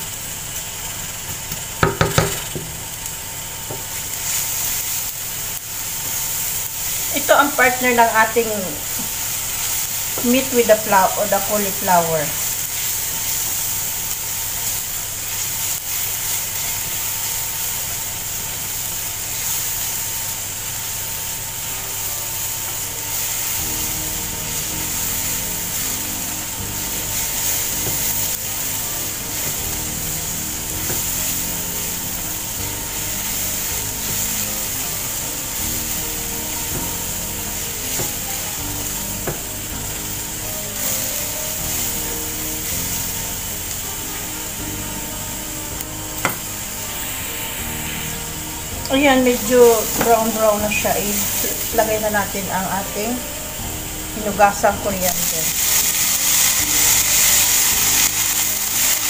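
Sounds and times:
garlic sizzling in oil: 0.0s - 59.0s
background music: 7.1s - 12.6s, 21.6s - 59.0s
spatula scraping frying pan: 22.7s - 43.8s.

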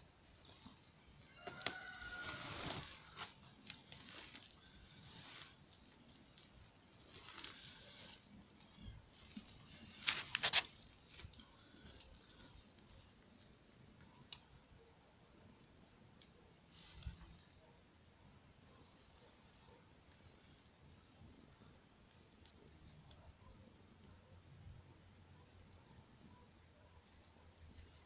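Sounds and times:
plastic sack rustling: 0.2s - 13.6s.

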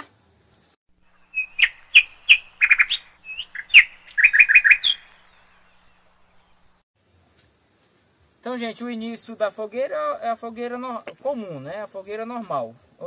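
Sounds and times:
bird chirping: 1.0s - 6.8s.

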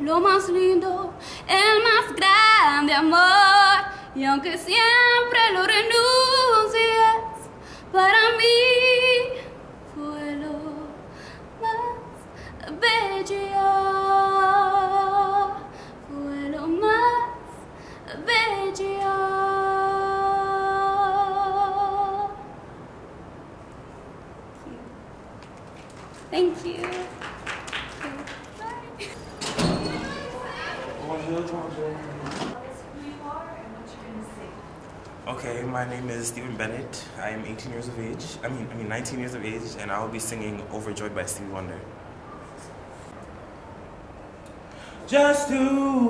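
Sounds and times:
girl singing: 0.0s - 11.0s, 11.6s - 22.6s, 26.3s - 27.2s.

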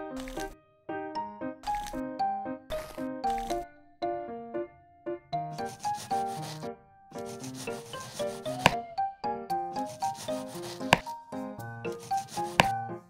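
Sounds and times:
light background music: 0.0s - 13.0s
knife sawing through sponge cake: 1.7s - 2.0s, 5.6s - 8.8s, 9.8s - 11.1s, 11.9s - 12.7s
sharp tap: 12.5s - 12.8s.

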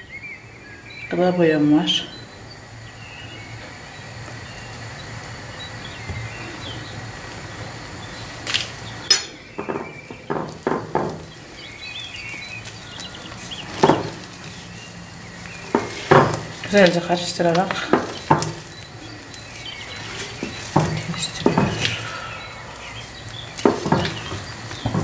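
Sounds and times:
utensils clinking on glass bowl: 9.1s - 11.1s.

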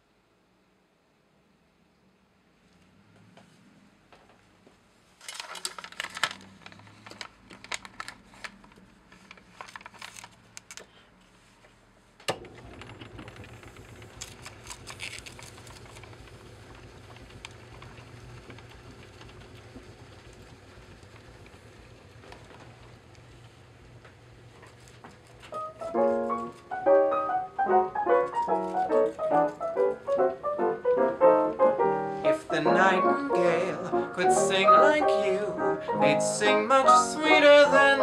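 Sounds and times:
piano roll mechanism clicks and rattles: 5.2s - 10.8s, 12.2s - 38.0s
pump motor humming: 12.3s - 23.2s.

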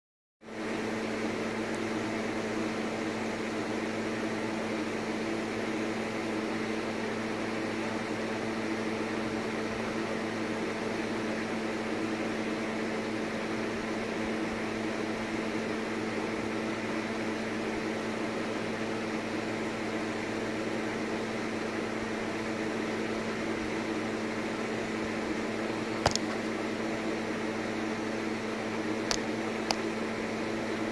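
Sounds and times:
machine hum: 20.1s - 30.9s
sharp clicks: 26.0s - 26.4s.

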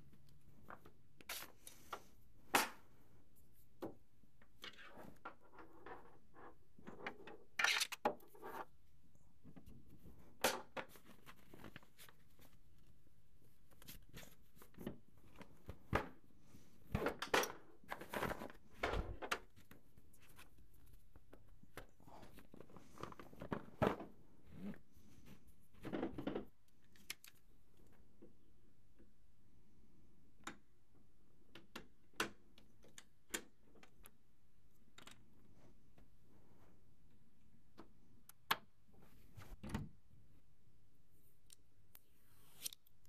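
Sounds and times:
plastic parts clicking and knocking: 16.9s - 19.8s, 31.4s - 34.2s.

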